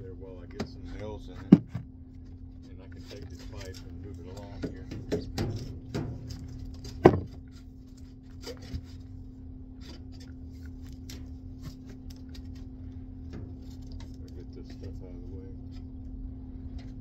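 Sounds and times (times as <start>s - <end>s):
low hum: 0.0s - 17.0s
pipe scraping and tapping: 0.4s - 9.2s, 9.8s - 16.0s
plastic pipe knocking: 1.5s - 1.8s, 4.6s - 7.4s.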